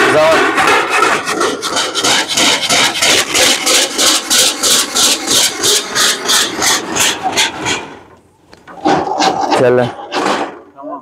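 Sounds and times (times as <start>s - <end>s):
hand saw cutting wood: 0.0s - 8.1s, 8.7s - 10.6s.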